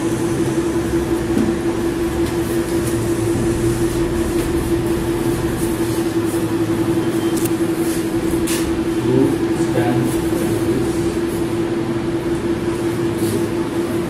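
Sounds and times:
steady mechanical hum: 0:00.0 - 0:14.0.

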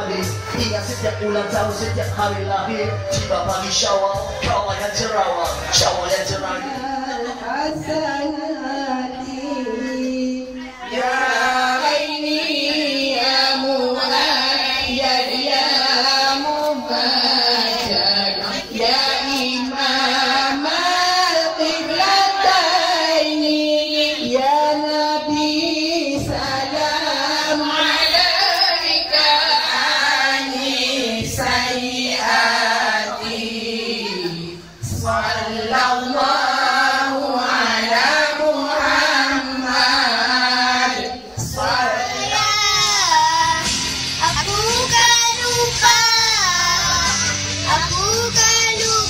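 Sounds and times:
music: 0:00.0 - 0:08.0, 0:34.0 - 0:49.0
woman singing: 0:00.0 - 0:49.0.

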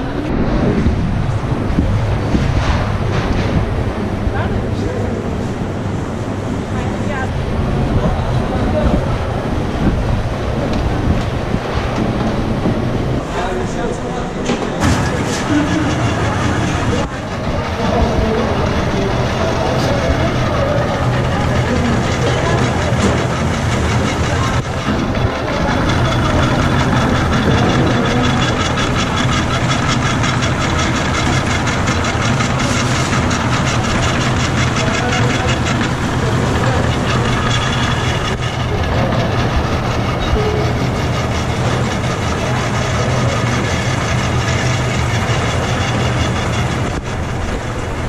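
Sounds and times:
machinery humming rhythmically: 0:00.0 - 0:48.0.

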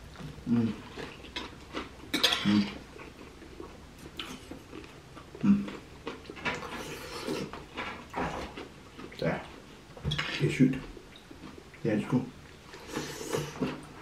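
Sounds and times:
cutlery scraping a plate: 0:02.1 - 0:02.8, 0:10.1 - 0:10.5.

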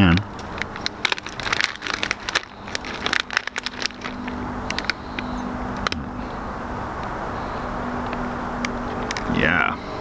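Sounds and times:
steady low hum: 0:00.0 - 0:10.0
plastic bag crinkling: 0:00.5 - 0:05.0.

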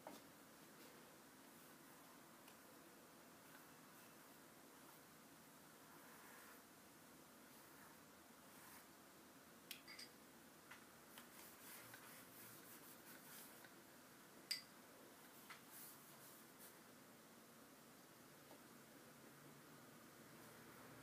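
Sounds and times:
brush strokes on paper: 0:05.8 - 0:06.7, 0:07.4 - 0:09.1, 0:11.0 - 0:13.8, 0:15.2 - 0:17.0.

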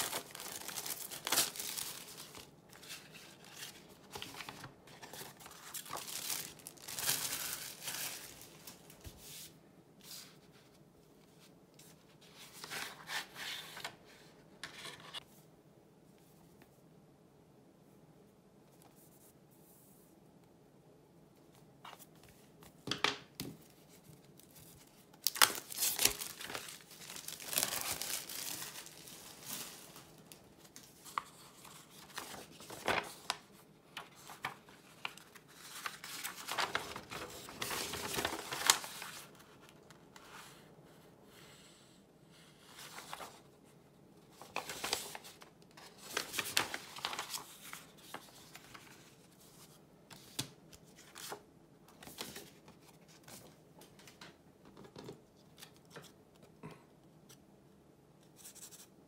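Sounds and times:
paper rustling and crinkling: 0:00.0 - 0:15.2, 0:23.5 - 0:40.6, 0:42.7 - 0:43.6, 0:44.3 - 0:56.2.

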